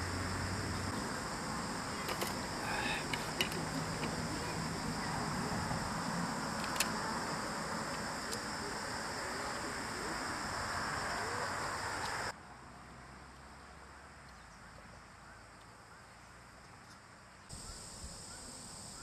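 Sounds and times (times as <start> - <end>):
outdoor hiss: 0.0 - 12.4, 17.5 - 19.0
insects chirping: 0.0 - 19.0.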